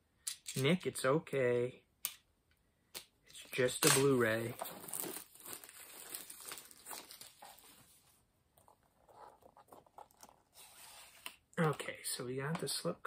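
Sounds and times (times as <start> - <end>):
plastic wrap crinkling and tearing: 3.6 - 8.0.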